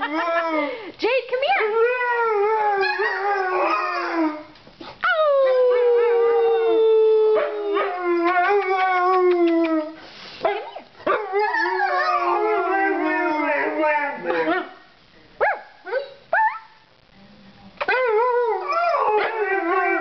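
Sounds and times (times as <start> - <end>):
dogs howling: 5.1 - 9.9, 11.1 - 14.6, 17.9 - 20.0.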